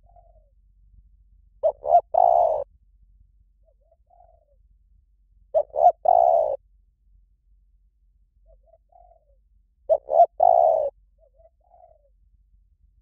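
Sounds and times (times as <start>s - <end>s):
dove cooing: 0.0s - 0.5s, 1.6s - 2.7s, 3.6s - 4.6s, 5.5s - 6.6s, 8.4s - 12.2s.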